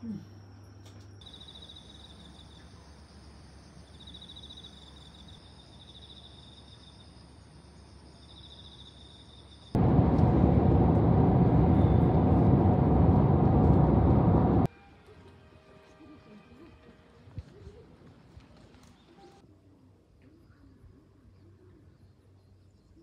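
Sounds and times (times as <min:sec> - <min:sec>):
high pulsing insect chirps: 0:01.2 - 0:09.7
loud steady rushing noise: 0:09.8 - 0:14.7.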